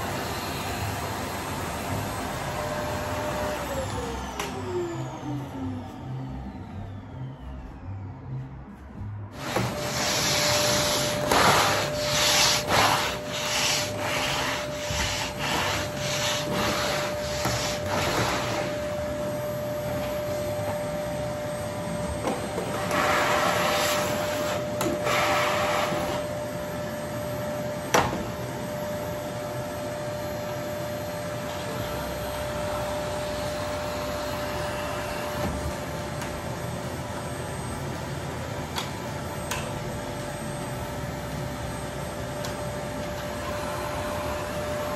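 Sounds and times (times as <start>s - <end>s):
vacuum cleaner whine: 0.0s - 44.9s
vacuum nozzle suction surges: 9.4s - 18.8s.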